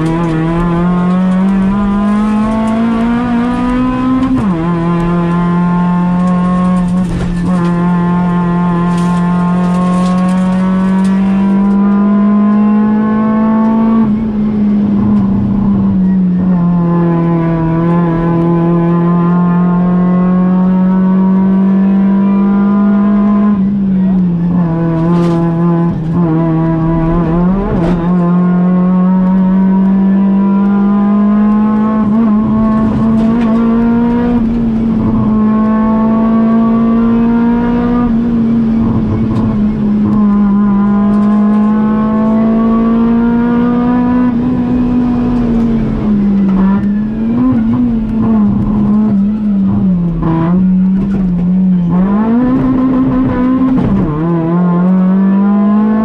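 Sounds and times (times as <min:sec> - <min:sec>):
rally car engine revving: 0:00.0 - 0:56.0.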